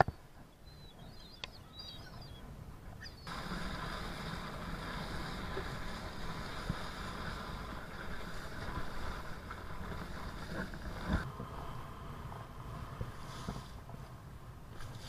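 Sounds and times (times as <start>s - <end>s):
wind rushing over microphone: 0.9s - 15.0s
water hissing past: 3.3s - 11.2s.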